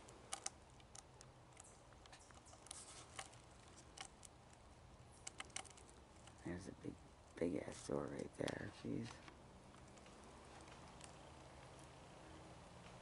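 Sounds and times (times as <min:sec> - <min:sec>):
faint small clicks and crackles: 0:00.0 - 0:13.0.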